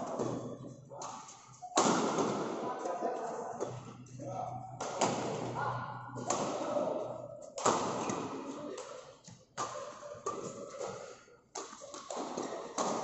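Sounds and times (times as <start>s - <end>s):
shuttlecock hit by rackets: 1.8s - 2.6s.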